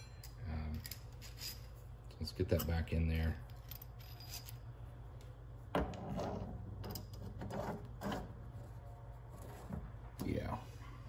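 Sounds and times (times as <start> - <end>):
metal parts knocking and scraping: 0.0 - 1.8, 3.5 - 4.6
steady low hum: 0.0 - 11.0.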